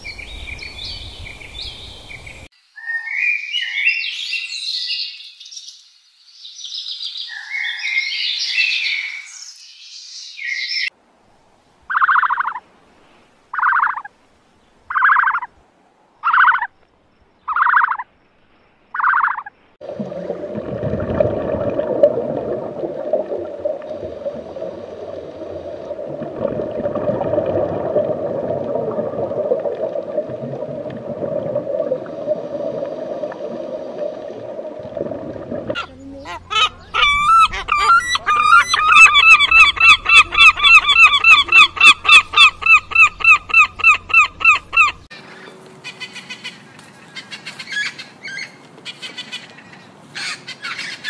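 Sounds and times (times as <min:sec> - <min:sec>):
underwater rushing water: 0:19.8 - 0:35.9.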